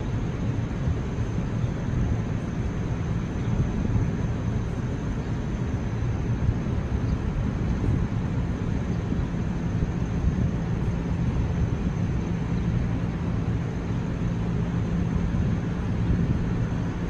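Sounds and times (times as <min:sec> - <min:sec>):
constant hum: 0:00.0 - 0:17.0.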